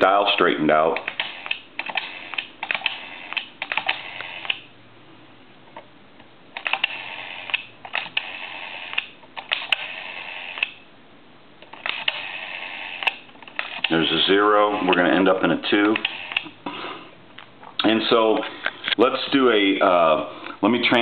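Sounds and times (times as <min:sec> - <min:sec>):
rotary dial clicking: 0:00.9 - 0:04.6, 0:06.6 - 0:10.8, 0:11.6 - 0:14.0, 0:15.9 - 0:16.6.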